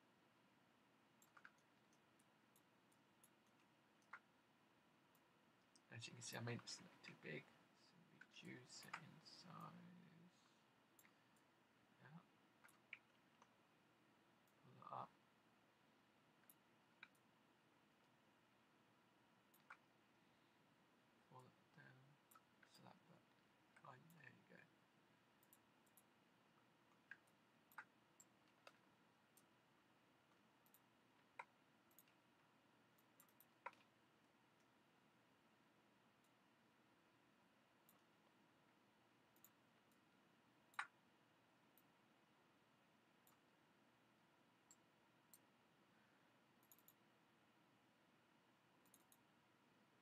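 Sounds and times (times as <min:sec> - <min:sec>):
computer mouse clicks: 0:01.2 - 0:04.4, 0:08.2 - 0:09.8, 0:10.9 - 0:11.5, 0:12.6 - 0:13.6, 0:16.4 - 0:17.3, 0:19.5 - 0:19.9, 0:22.2 - 0:22.8, 0:25.4 - 0:29.6, 0:30.2 - 0:34.8, 0:37.8 - 0:41.1, 0:41.7 - 0:42.0, 0:43.2 - 0:43.6, 0:44.6 - 0:45.5, 0:46.5 - 0:47.1, 0:48.7 - 0:49.4.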